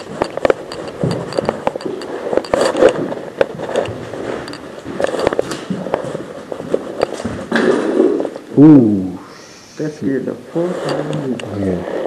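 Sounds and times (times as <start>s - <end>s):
footsteps crunching on debris: 0.0s - 8.4s
scrapes and knocks: 0.0s - 8.4s
clothing rustling: 0.0s - 8.5s.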